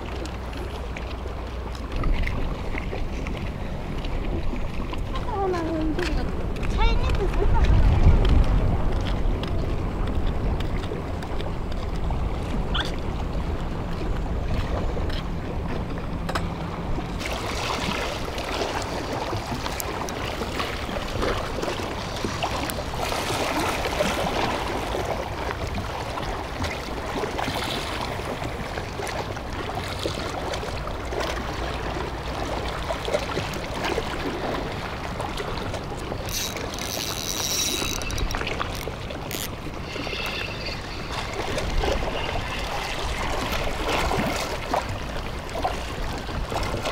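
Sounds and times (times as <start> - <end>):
wind buffeting microphone: 1.9 - 28.7
low steady drone: 37.9 - 44.3.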